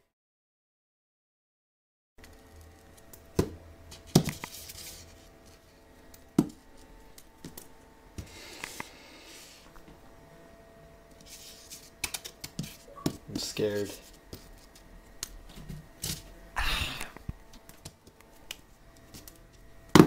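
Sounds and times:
scraping and rustling: 3.9s - 5.8s, 11.2s - 14.9s.

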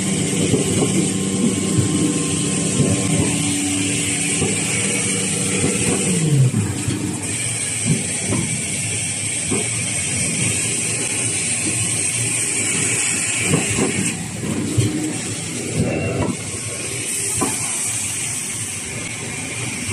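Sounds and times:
machinery high hiss: 0.0s - 14.3s
mechanical knocks and clatter: 0.2s - 8.7s.

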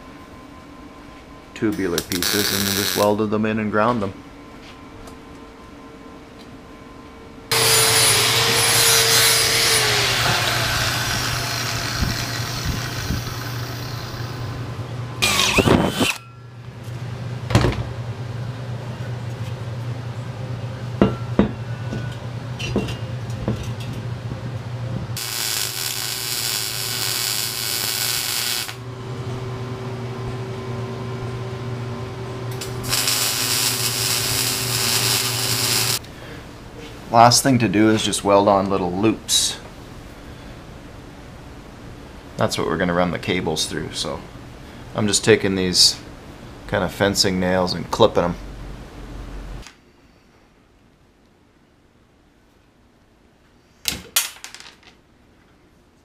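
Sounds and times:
steady hum: 0.0s - 50.9s
welding and grinding noise: 1.7s - 3.2s, 7.5s - 16.3s, 25.2s - 30.4s, 31.0s - 36.1s.

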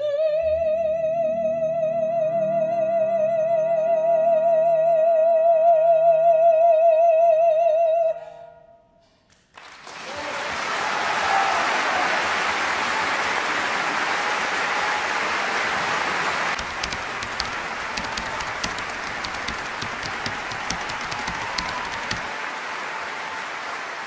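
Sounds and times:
audience applauding: 9.5s - 24.0s.

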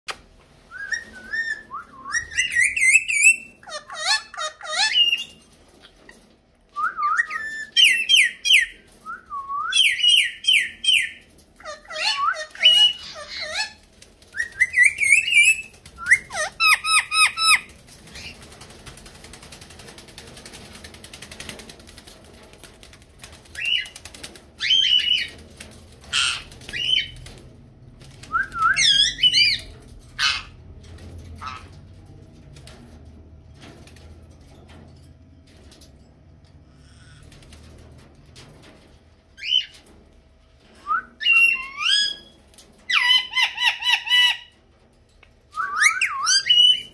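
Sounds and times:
parakeets squawking: 2.2s - 5.4s, 10.0s - 13.9s, 14.6s - 18.4s, 26.1s - 27.1s, 28.8s - 30.6s, 31.4s - 31.7s.

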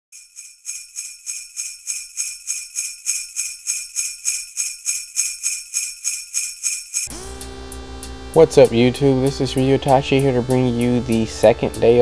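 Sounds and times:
sleigh bells shaken: 0.2s - 7.1s.

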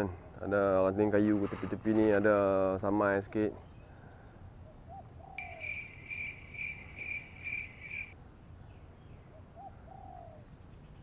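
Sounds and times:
cricket chirping: 5.4s - 8.2s.

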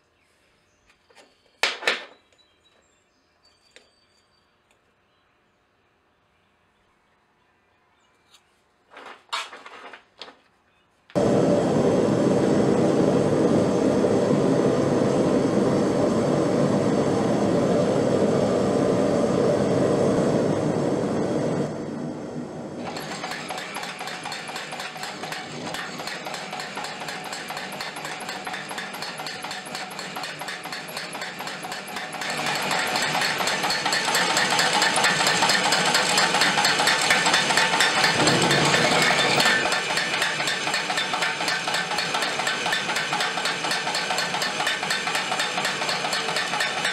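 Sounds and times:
power hammer striking hot steel: 22.8s - 46.9s.

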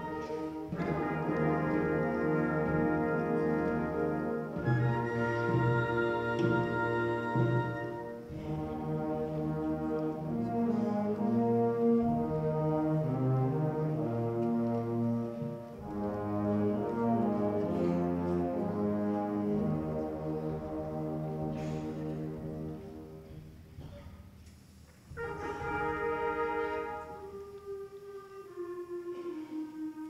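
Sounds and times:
brass instruments playing chords: 0.0s - 23.6s, 25.1s - 30.0s.

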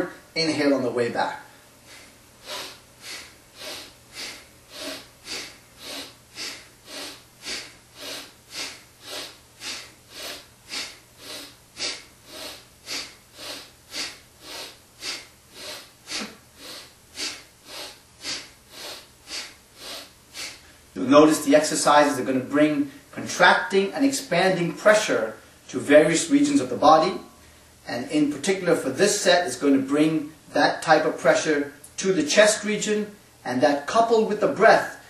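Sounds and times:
man breathing hard: 1.5s - 20.9s.

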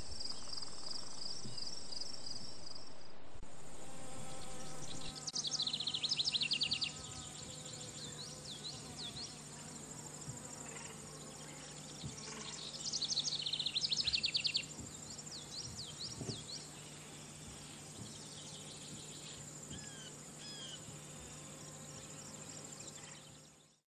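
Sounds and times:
insect chorus: 0.0s - 23.8s
soft bird chirps: 11.4s - 17.0s
songbird trilling: 12.2s - 14.7s, 19.2s - 20.8s.

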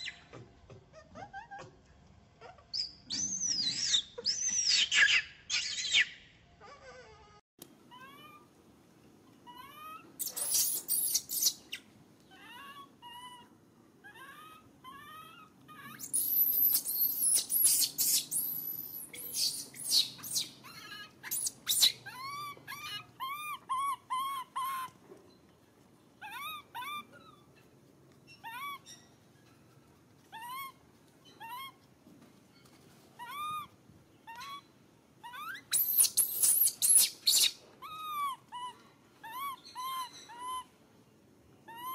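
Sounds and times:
infant monkey coo calls: 0.0s - 1.8s, 2.4s - 8.5s, 9.4s - 25.0s, 26.2s - 27.6s, 28.3s - 29.1s, 30.3s - 31.8s, 33.2s - 40.8s, 41.6s - 41.9s
infant monkey screaming: 2.4s - 8.5s, 9.4s - 25.0s, 26.2s - 27.5s, 28.3s - 29.0s, 30.3s - 30.8s, 31.4s - 31.8s, 33.2s - 40.7s, 41.6s - 41.9s.

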